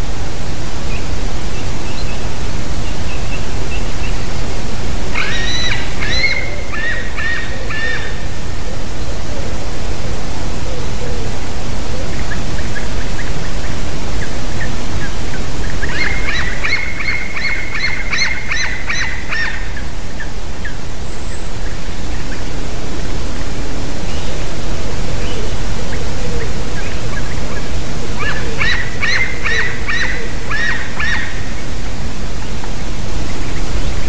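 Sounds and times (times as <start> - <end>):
steady loud hiss: 0.0 - 34.0
eaglet calling: 5.1 - 9.6, 11.9 - 23.2, 24.0 - 34.0.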